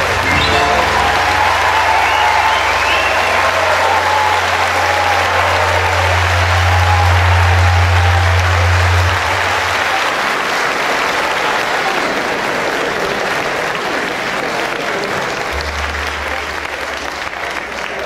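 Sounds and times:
low hum: 0.0s - 10.0s
audience applauding: 0.0s - 18.0s.

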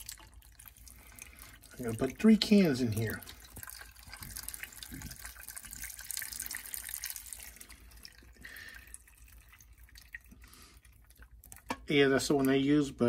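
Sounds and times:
broth pouring and splashing: 0.0s - 12.6s.

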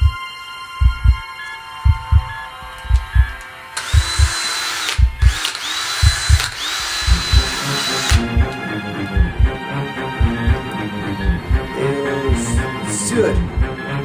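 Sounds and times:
low paired thumps: 0.0s - 0.2s, 0.8s - 4.4s, 5.0s - 5.4s, 6.0s - 12.7s, 13.4s - 13.8s
cordless drill whine: 3.8s - 8.2s.

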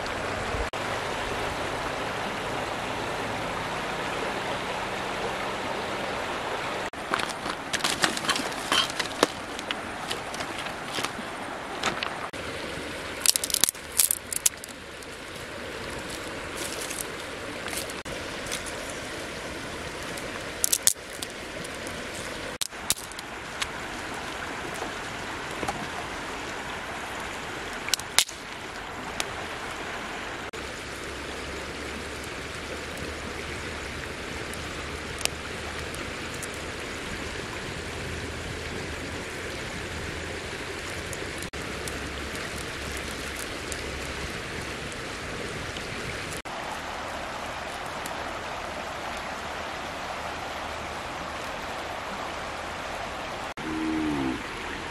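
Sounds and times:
river running: 0.0s - 54.9s
sticks snapping: 13.2s - 14.8s, 20.6s - 21.4s, 22.6s - 23.7s, 27.9s - 28.4s.

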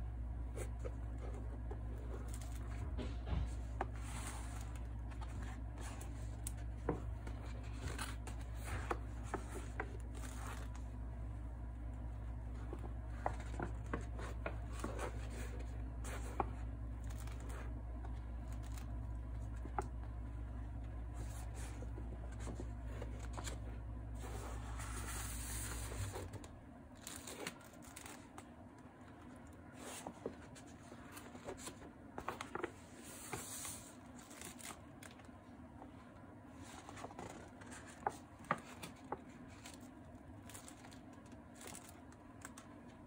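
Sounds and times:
low steady hum: 0.0s - 43.0s
paper rustling and sliding: 0.4s - 10.9s, 12.4s - 19.9s, 21.1s - 28.5s, 29.7s - 35.2s
soft taps and crinkles of pages: 0.4s - 11.0s, 11.6s - 43.0s.

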